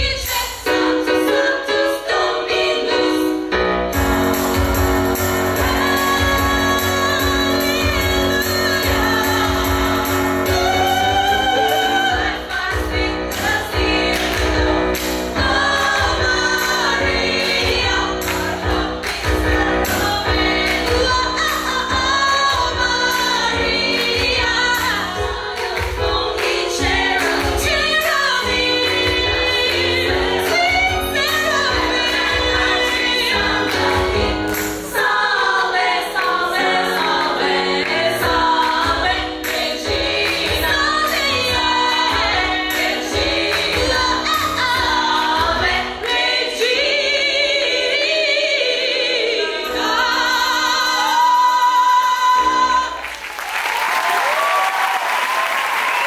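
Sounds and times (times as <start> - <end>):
women's choir singing: 0.0 - 53.1
bass: 3.5 - 47.8
steady drum beat: 4.0 - 35.0.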